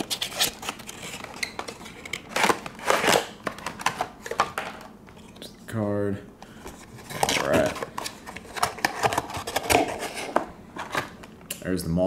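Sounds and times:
cardboard rustling and scraping: 6.7 - 11.2.

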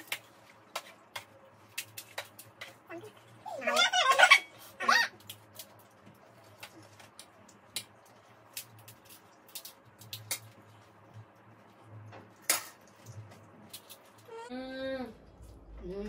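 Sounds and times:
low steady hum: 0.0 - 16.0
crisp shells cracking: 6.7 - 10.6.

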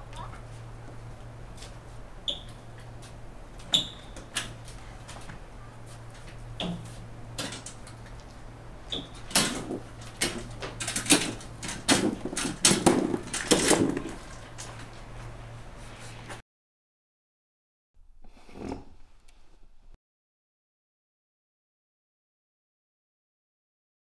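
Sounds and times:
short high squeaks: 2.2 - 2.7, 3.6 - 4.3, 8.9 - 9.2
hand truck rattling: 8.9 - 14.8.

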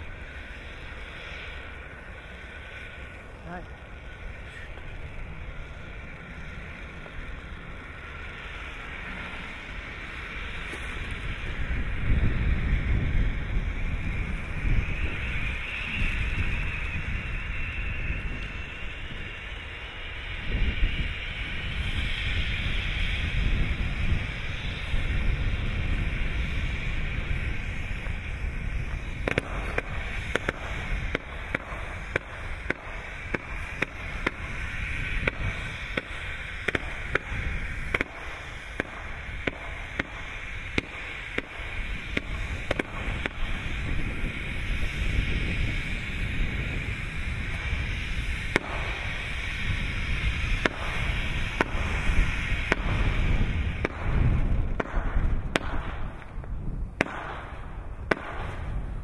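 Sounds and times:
firework spraying hiss: 0.0 - 59.0
firework pops: 27.9 - 45.2, 47.4 - 59.0.

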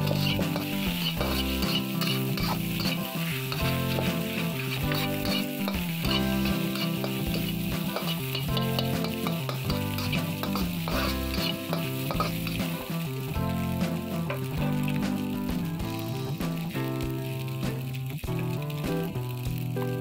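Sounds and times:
metal spatula scraping pan: 0.0 - 12.9
rice sizzling in a wok: 0.0 - 20.0.

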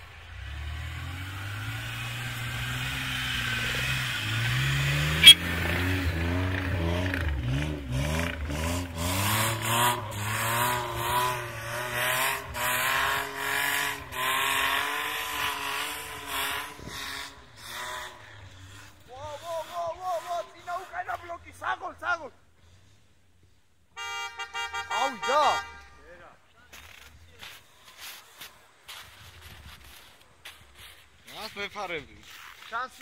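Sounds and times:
engine revving hard: 0.3 - 18.9.

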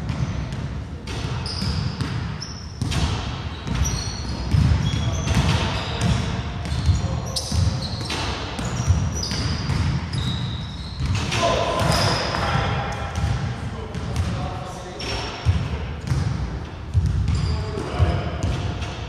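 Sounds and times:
sneaker squeaks: 1.1 - 13.4, 14.9 - 16.2, 16.9 - 19.0
basketball bouncing on hardwood: 2.8 - 7.7, 8.6 - 10.2, 16.9 - 17.4.

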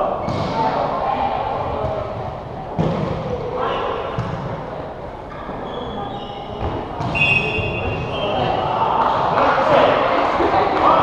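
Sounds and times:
indistinct chatter: 0.0 - 11.0
high squeaks: 5.4 - 8.6.

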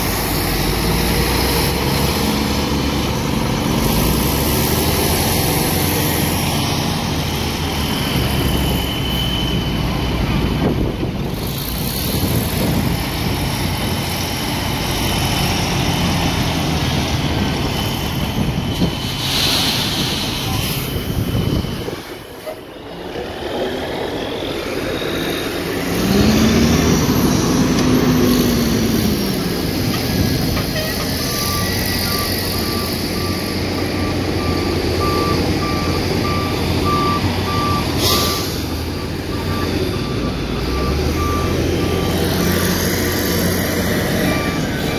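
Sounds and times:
engine revving: 0.0 - 9.0, 24.6 - 44.9
diesel truck engines running: 0.0 - 44.9
reversing alarm beeping: 0.2 - 10.3, 24.1 - 44.9.

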